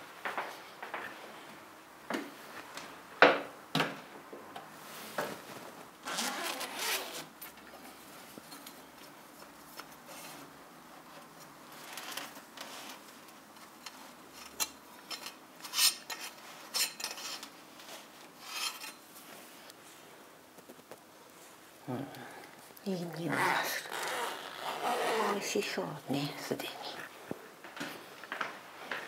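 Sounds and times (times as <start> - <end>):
scraping and rustling of mesh net: 11.7 - 19.7.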